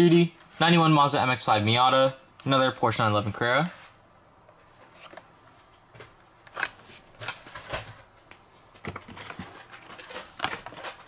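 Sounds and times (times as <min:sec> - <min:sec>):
plastic packaging crinkling: 0:08.8 - 0:11.0.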